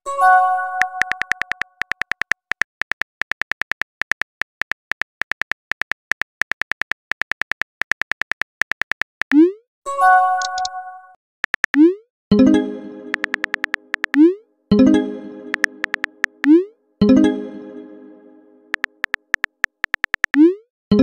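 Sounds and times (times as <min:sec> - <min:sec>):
phone keyboard typing clicks: 0:00.8 - 0:09.4, 0:10.4 - 0:10.7, 0:11.4 - 0:11.8, 0:13.1 - 0:14.2, 0:15.5 - 0:16.6, 0:18.7 - 0:20.4.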